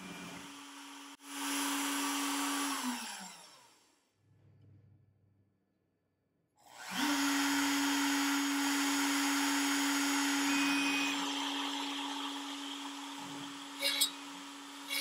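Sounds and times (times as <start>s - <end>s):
router high whine: 6.8s - 15.0s.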